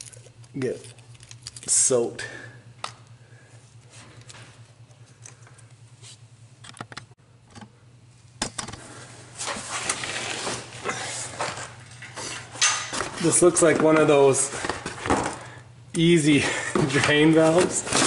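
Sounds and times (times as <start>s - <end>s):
tools and parts rattling: 0.0s - 2.0s
steady low hum: 0.0s - 18.0s.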